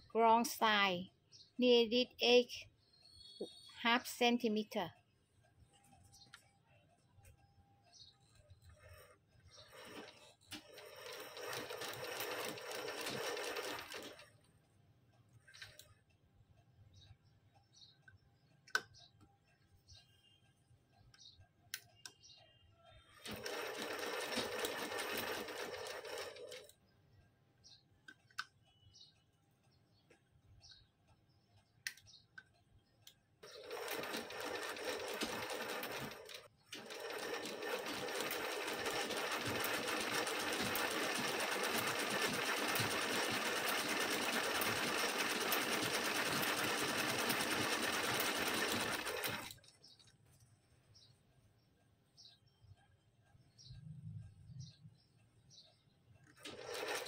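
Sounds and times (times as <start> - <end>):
sewing machine stitching: 8.6 - 14.4, 23.2 - 26.7, 33.4 - 49.7, 56.3 - 57.0.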